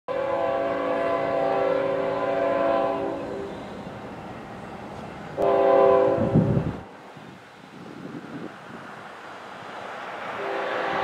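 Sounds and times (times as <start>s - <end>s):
locomotive air horn blast: 0.1s - 3.9s, 5.4s - 6.6s, 10.4s - 11.0s.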